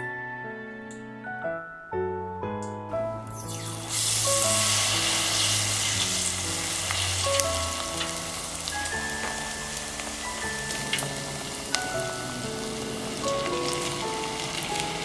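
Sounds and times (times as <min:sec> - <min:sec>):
food sizzling in hot oil: 0:03.3 - 0:15.0.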